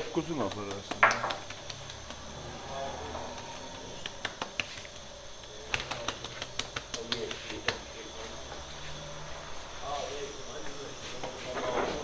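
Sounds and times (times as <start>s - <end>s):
sharp clicks: 0.4s - 2.3s, 3.3s - 7.8s.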